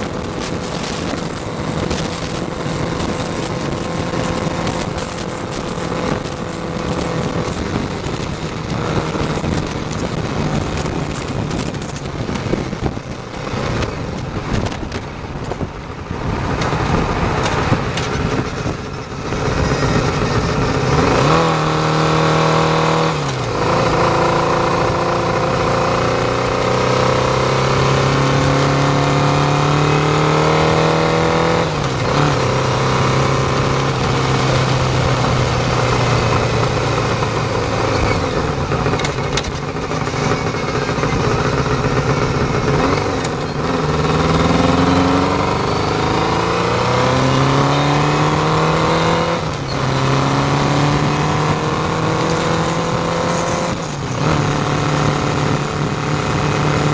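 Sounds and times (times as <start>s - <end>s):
motorcycle engine: 0.0s - 56.9s
wind buffeting on camera: 0.0s - 56.9s.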